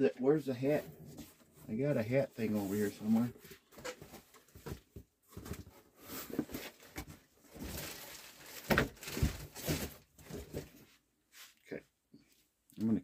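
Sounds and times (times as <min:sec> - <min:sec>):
rummaging rustling: 0:00.6 - 0:11.0.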